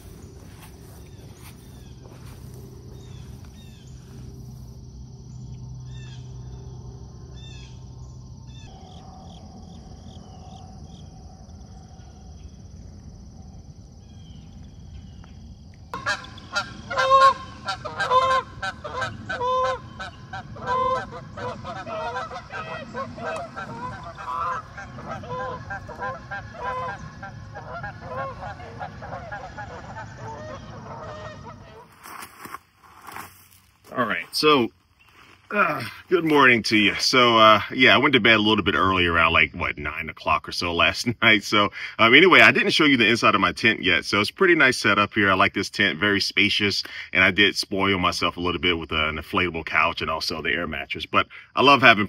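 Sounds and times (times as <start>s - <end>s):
geese honking: 0.0s - 5.0s, 16.0s - 32.0s
small birds chirping: 0.0s - 9.4s, 34.4s - 36.5s.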